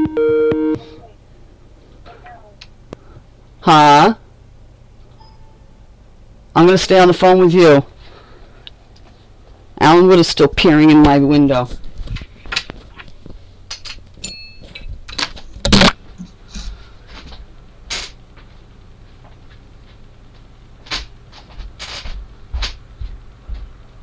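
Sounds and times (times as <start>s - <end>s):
short electronic beep: 0.0s - 1.0s.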